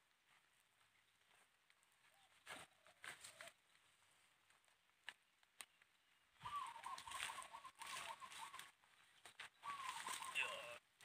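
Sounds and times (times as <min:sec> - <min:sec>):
bird calling short notes: 0:06.4 - 0:08.7, 0:09.5 - 0:10.8.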